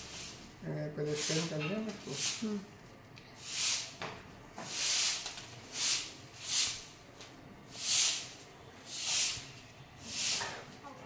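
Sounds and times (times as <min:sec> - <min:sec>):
broom sweeping pavement: 0:00.0 - 0:02.7, 0:03.4 - 0:04.0, 0:04.6 - 0:07.0, 0:07.6 - 0:10.6.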